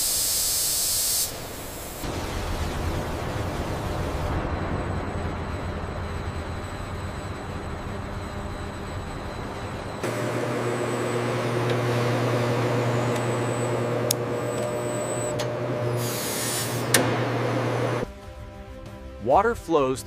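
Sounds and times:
burst of hiss: 0.0s - 2.2s
machine shop hum: 3.2s - 18.1s.

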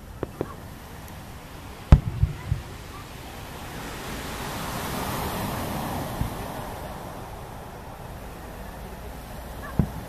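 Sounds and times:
distant firework thumps: 0.0s - 0.6s, 1.8s - 3.0s, 6.1s - 6.5s, 9.6s - 10.0s
surf washing: 0.0s - 10.0s.

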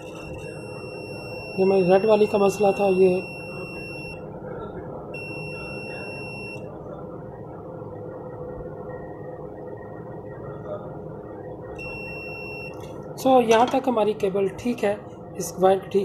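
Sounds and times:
meter continuity buzzer beeping: 0.0s - 4.2s, 5.1s - 6.7s, 11.8s - 12.8s.

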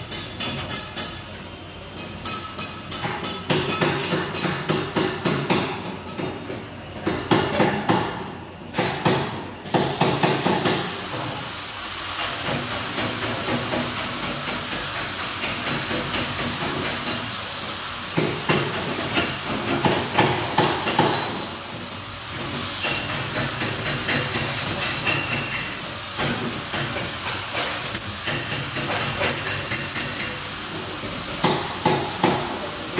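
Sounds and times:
sharp metallic knocks and clicks: 0.0s - 1.3s, 2.0s - 11.2s, 12.2s - 17.3s, 18.1s - 21.5s, 22.8s - 30.4s, 31.4s - 32.6s
welding crackling hiss: 10.1s - 32.9s.

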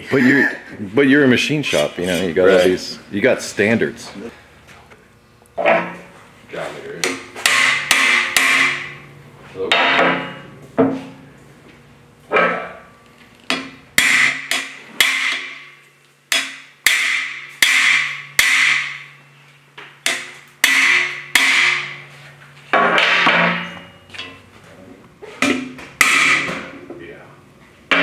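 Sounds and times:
hammer striking metal bar: 7.0s - 9.0s, 9.7s - 11.0s, 13.5s - 19.2s, 20.0s - 22.0s, 22.7s - 24.4s, 25.4s - 26.7s.

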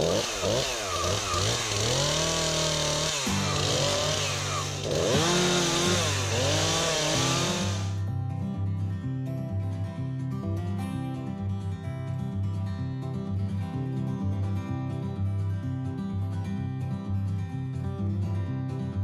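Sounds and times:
chainsaw cutting wood: 0.0s - 8.0s
acoustic guitar music: 0.0s - 19.0s.

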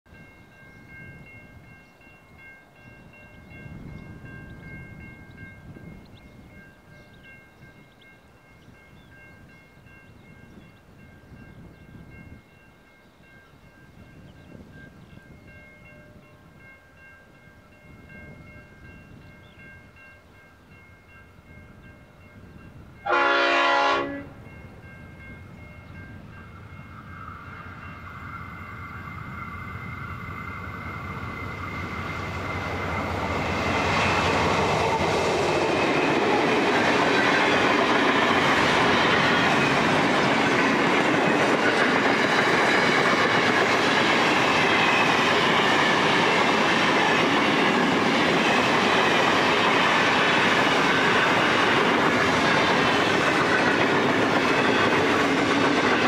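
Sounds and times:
diesel locomotive engine: 0.1s - 56.0s
locomotive horn blast: 23.0s - 24.4s.

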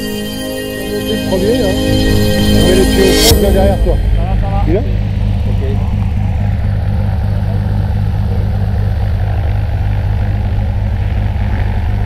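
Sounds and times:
propeller plane engine idling: 3.9s - 12.0s.

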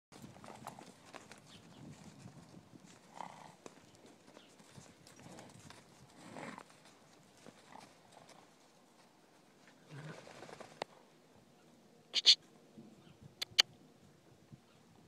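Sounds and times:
horse hoofsteps on snow: 0.1s - 9.6s.

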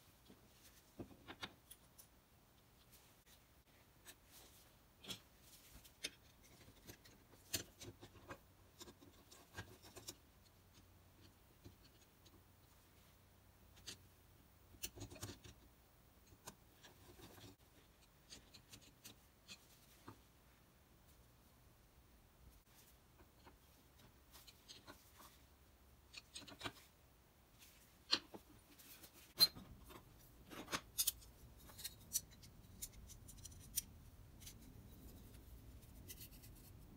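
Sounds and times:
small metallic clicks: 29.3s - 34.7s.

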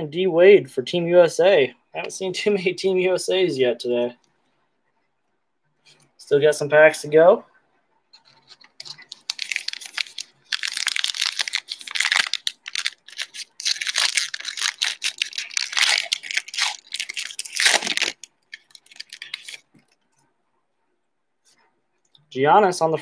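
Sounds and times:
wrapper tearing and crinkling: 8.8s - 19.8s.

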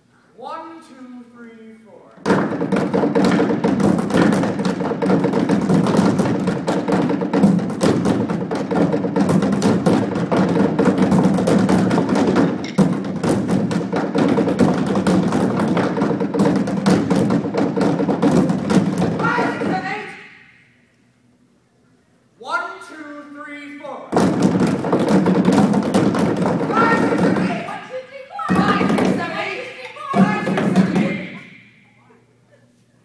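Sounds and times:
drumming on trash cans: 2.2s - 20.2s, 24.1s - 31.6s.

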